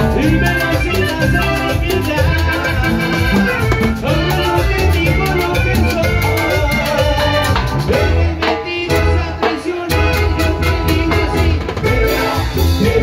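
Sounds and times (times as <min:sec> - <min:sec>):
accordion: 0:00.0 - 0:13.0
electric bass: 0:00.0 - 0:13.0
latin dance band playing: 0:00.0 - 0:13.0.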